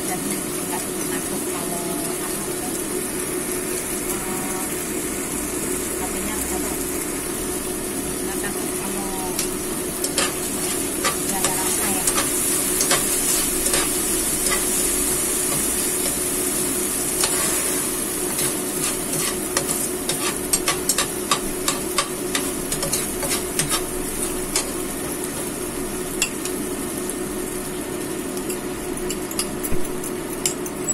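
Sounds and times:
food sizzling in frying pan: 0.0 - 30.9
spatula scraping pan: 9.4 - 16.2, 17.1 - 24.8.

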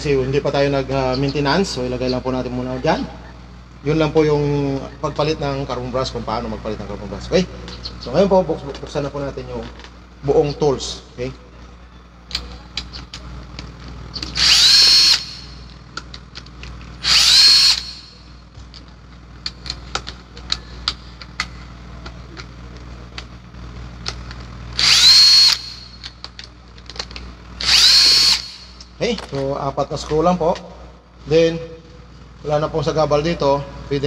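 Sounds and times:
cordless drill whining: 14.2 - 15.6, 17.0 - 18.2, 24.8 - 26.1, 27.6 - 28.8
screws and tools clicking: 14.3 - 15.5, 17.0 - 18.2, 24.8 - 26.4, 27.0 - 28.9.

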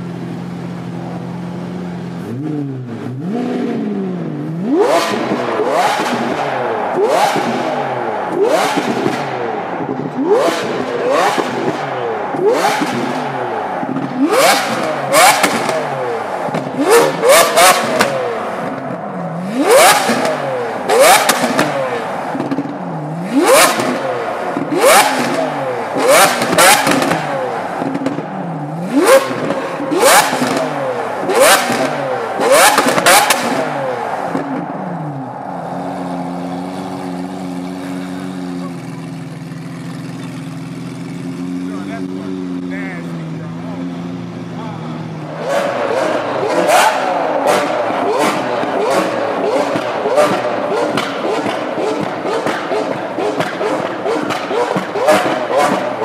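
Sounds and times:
car engine revving: 0.0 - 56.0
exhaust cracks and pops: 49.6 - 56.0.

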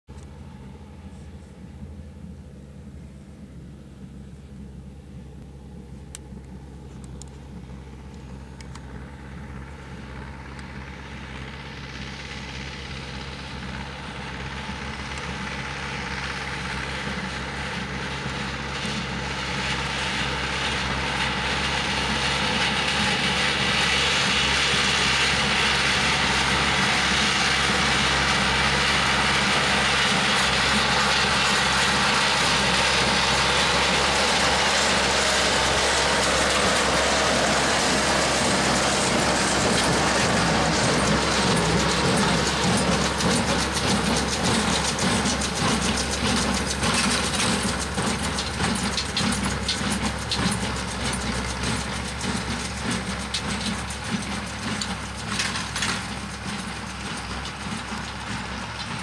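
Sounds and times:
tractor engine running: 0.0 - 59.0
baler mechanical clatter: 25.8 - 59.0.

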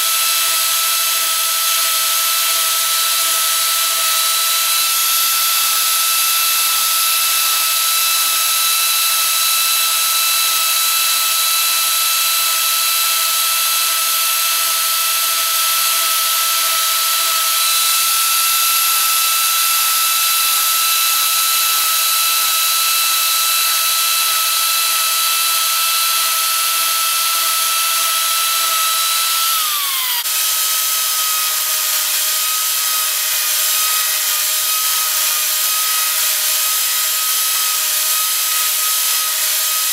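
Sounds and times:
power carver whining into wood: 0.0 - 39.9.

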